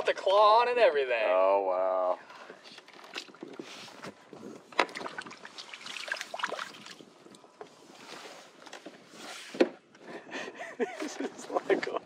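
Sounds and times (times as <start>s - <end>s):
water splashing beside kayak: 2.5s - 7.4s.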